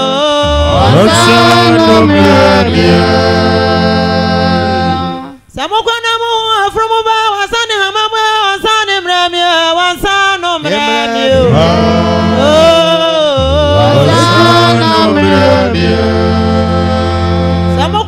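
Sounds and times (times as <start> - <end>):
gospel singing over music: 0.0 - 5.4, 10.4 - 18.0
low bass line: 0.4 - 5.3, 11.3 - 18.0.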